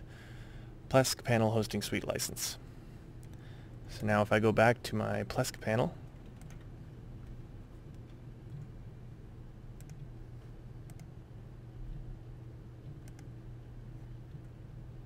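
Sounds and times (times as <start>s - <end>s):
low room hum: 0.0s - 15.0s
computer mouse clicks: 6.2s - 8.7s, 9.8s - 10.1s, 10.8s - 11.1s, 12.8s - 13.4s.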